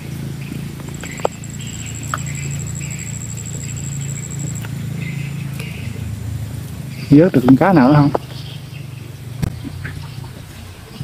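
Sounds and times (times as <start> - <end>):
steady low hum: 0.0 - 11.0
high fast-pulsing trill: 0.9 - 5.3.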